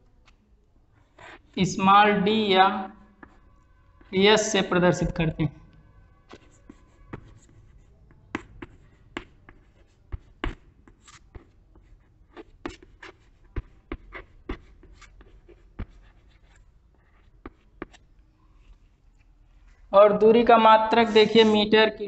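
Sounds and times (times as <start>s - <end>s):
chalk tapping and scratching on blackboard: 1.0s - 1.6s, 3.0s - 4.7s, 5.8s - 19.8s.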